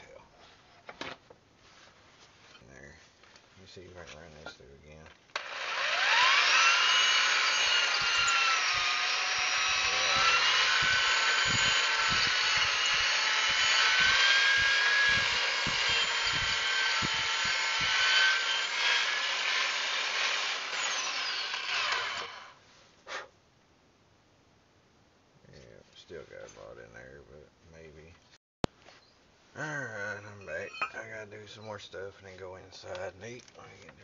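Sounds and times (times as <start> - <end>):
electric drill motor whine: 5.3 - 22.6.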